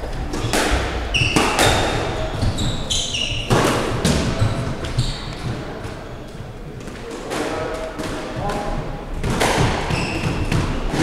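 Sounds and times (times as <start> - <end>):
shoes squeaking on wooden floor: 0.0 - 6.7, 9.7 - 11.0
squash ball cracking off walls: 7.2 - 11.0.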